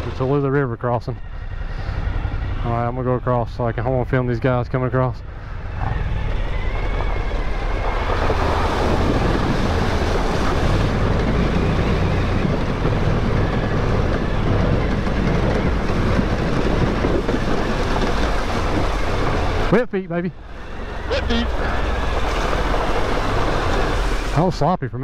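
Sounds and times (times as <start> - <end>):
motorcycle engine running: 0.0 - 19.8
wind noise on microphone: 5.2 - 19.7
water splashing: 5.2 - 19.8, 20.4 - 24.7.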